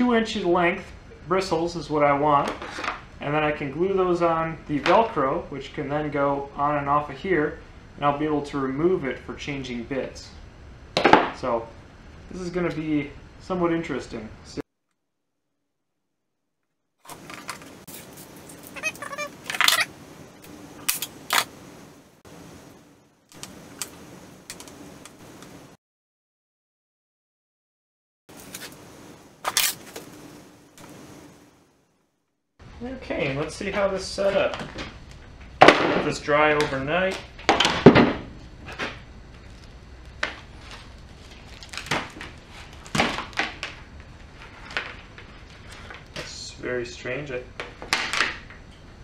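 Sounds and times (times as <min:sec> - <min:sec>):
plastic handling rustles: 0:39.4 - 0:46.2
plastic bag crinkling: 0:40.4 - 0:46.0.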